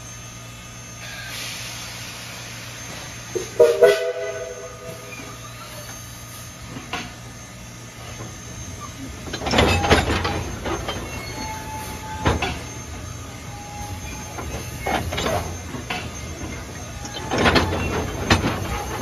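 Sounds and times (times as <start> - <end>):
train rumbling: 0.0 - 19.0
clanks and knocks from wheels: 6.7 - 7.3, 9.0 - 13.2, 13.8 - 19.0
faint wheel squeal: 8.4 - 19.0.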